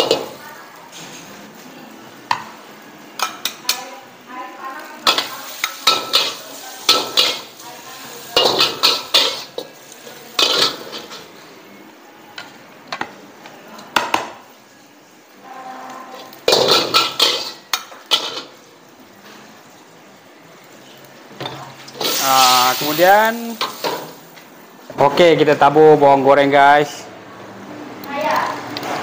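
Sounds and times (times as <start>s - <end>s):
steel ladle scraping a wok: 5.0s - 7.6s.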